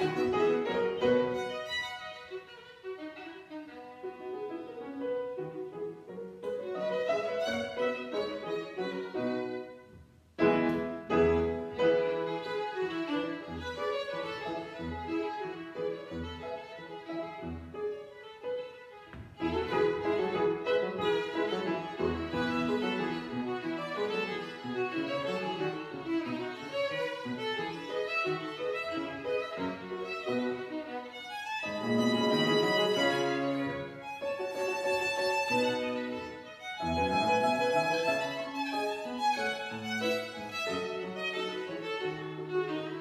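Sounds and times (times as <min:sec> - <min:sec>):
grand piano: 0:00.0 - 0:43.0
violin: 0:00.0 - 0:43.0.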